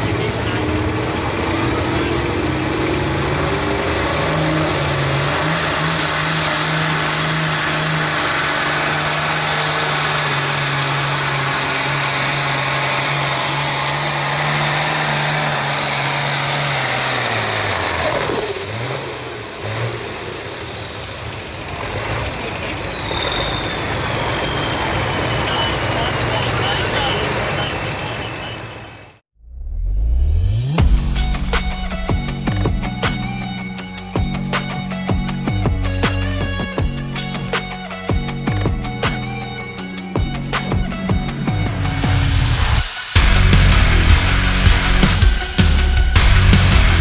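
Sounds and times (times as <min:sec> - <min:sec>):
tractor diesel engine under load: 0:00.0 - 0:29.2, 0:30.8 - 0:47.0.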